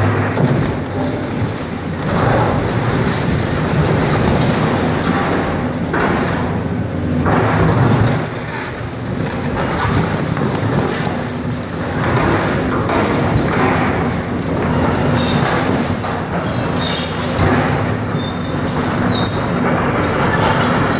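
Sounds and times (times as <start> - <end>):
excavator engine running: 0.0 - 20.9
concrete cracking and crumbling: 0.4 - 6.4, 7.6 - 15.6.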